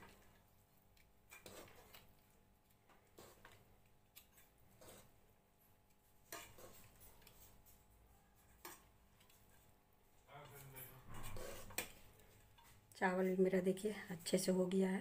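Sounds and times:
spoon scraping against a pot: 1.3s - 2.2s, 3.0s - 3.6s, 4.2s - 5.2s, 6.2s - 9.8s, 10.4s - 12.8s.

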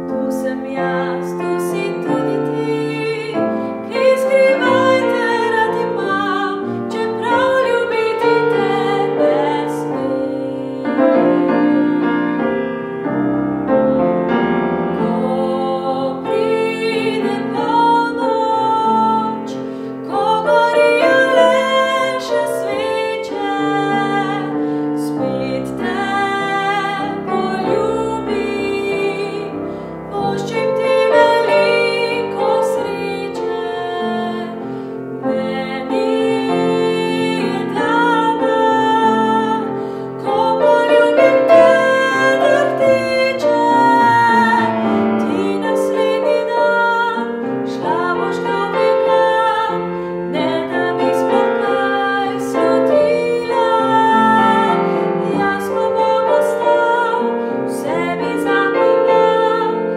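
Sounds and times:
woman singing: 0.0s - 12.2s, 15.0s - 59.9s
grand piano accompaniment: 0.0s - 59.9s.

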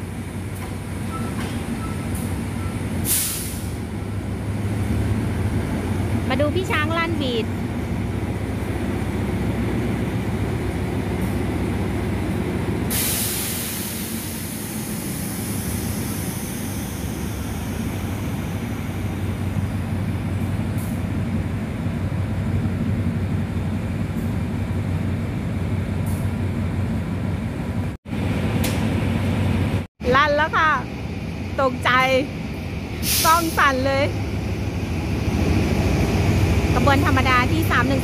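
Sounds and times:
compressed air hiss: 3.0s - 3.8s, 12.9s - 16.6s, 33.0s - 33.6s.

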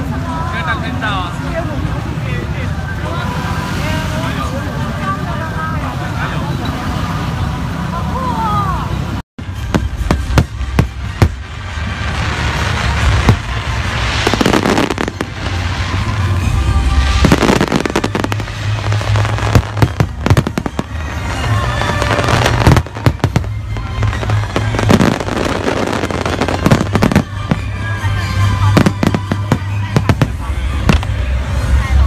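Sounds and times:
fireworks crackling: 8.6s - 32.0s.

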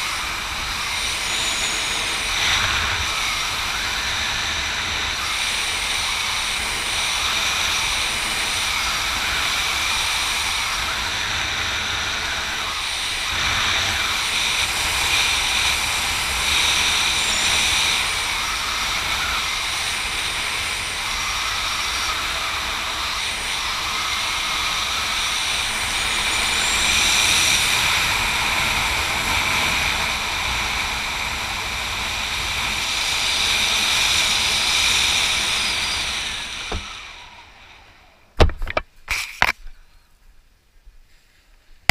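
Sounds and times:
wind rushing over microphone: 0.0s - 37.3s
steady high whistle: 32.9s - 37.8s.

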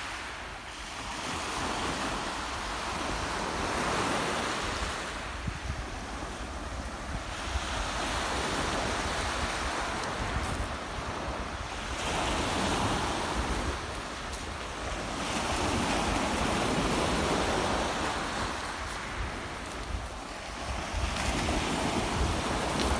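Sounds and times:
waves breaking on pebble shore: 0.0s - 22.9s
wind buffeting microphone: 1.2s - 22.9s.

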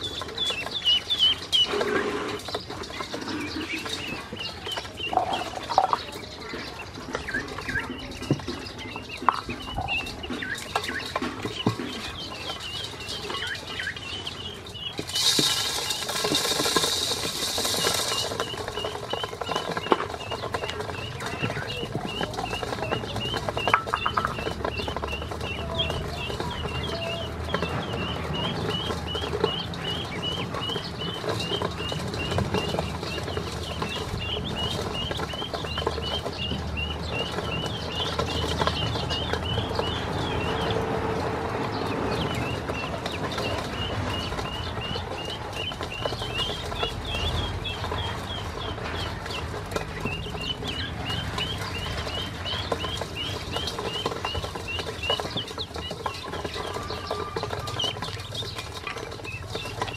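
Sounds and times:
feet and bills scuffling on metal bowl: 0.0s - 41.5s
ducklings peeping: 0.0s - 59.9s.

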